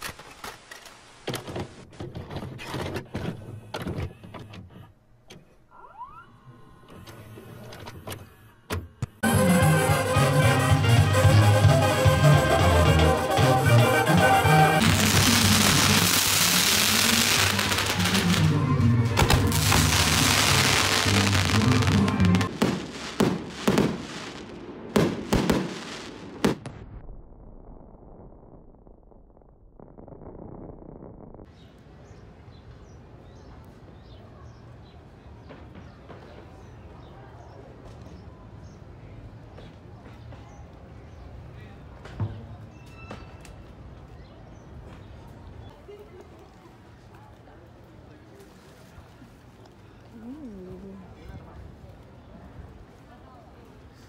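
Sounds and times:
music: 0:09.2 - 0:22.5
firework fountain hissing and crackling: 0:12.4 - 0:26.7
firework shells banging: 0:19.2 - 0:26.8.

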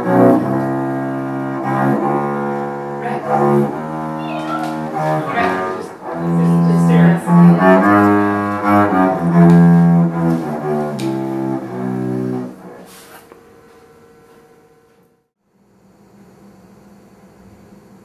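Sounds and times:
low bowed string melody: 0:00.0 - 0:12.9.

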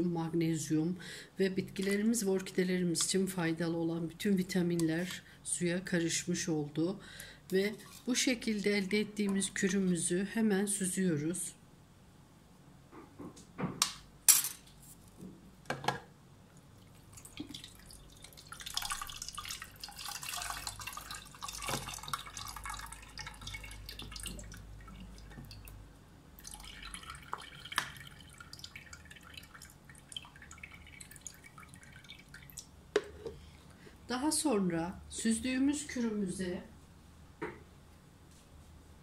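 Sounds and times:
liquid dripping: 0:16.5 - 0:32.8
liquid pouring and splashing: 0:16.7 - 0:25.8, 0:26.4 - 0:32.7.

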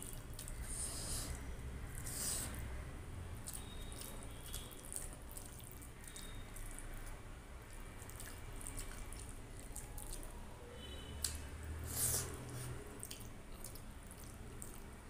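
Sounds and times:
fingers squishing wet rice: 0:03.4 - 0:10.4.

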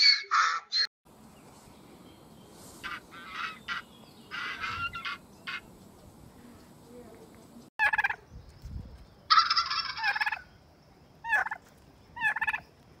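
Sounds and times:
turkey gobbling: 0:02.8 - 0:05.7, 0:07.8 - 0:08.2, 0:09.3 - 0:10.5, 0:11.2 - 0:11.6, 0:12.2 - 0:12.6.

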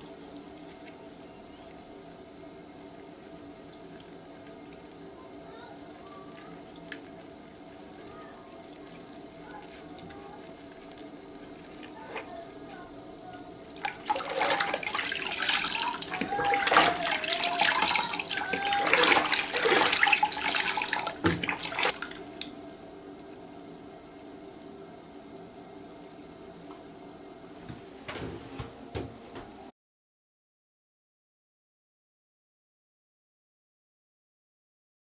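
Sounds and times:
soapy water splashing in bucket: 0:03.7 - 0:23.4.

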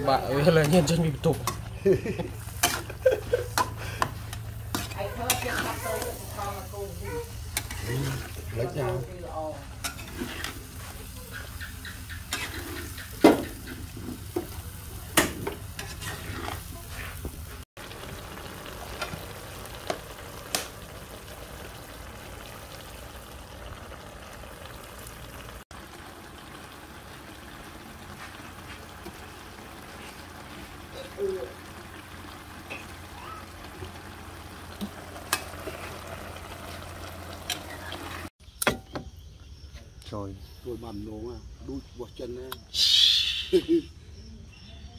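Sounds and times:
food sizzling in a wok: 0:00.0 - 0:38.3
metal spoon stirring: 0:07.5 - 0:08.5, 0:09.8 - 0:11.6, 0:15.8 - 0:16.8.

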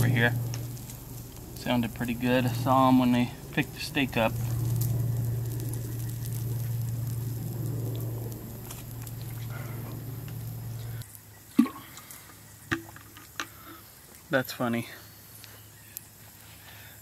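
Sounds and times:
bacon sizzling and crackling: 0:00.0 - 0:11.5
steady low hum: 0:00.0 - 0:14.0.

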